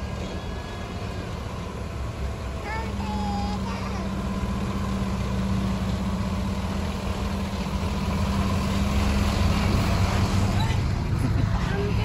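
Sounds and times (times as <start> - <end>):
diesel coach engine running: 0.0 - 12.0.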